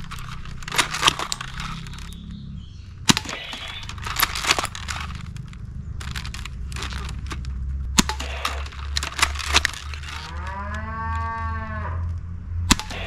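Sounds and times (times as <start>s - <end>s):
steady low hum: 0.0s - 13.0s
toy blaster sharp cracks: 3.1s - 4.0s, 12.7s - 13.0s.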